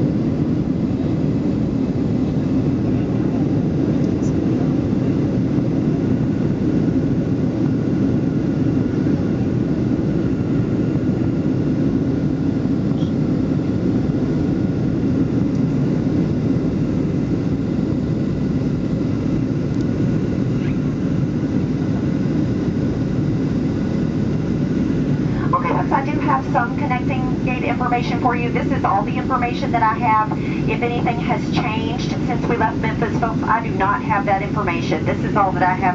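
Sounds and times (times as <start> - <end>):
airliner cabin engine noise: 0.0 - 35.9.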